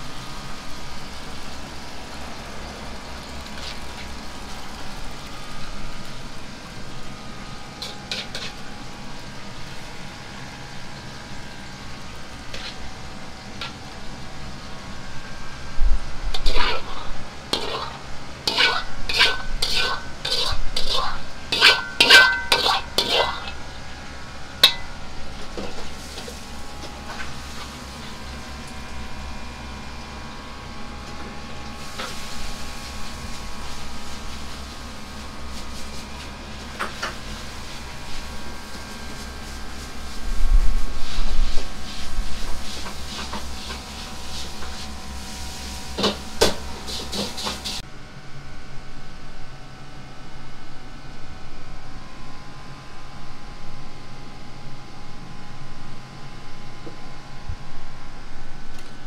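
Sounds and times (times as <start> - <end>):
kitchen machinery rumble and hiss: 0.0 - 59.0
dishes clinking: 17.6 - 23.6, 24.6 - 25.0.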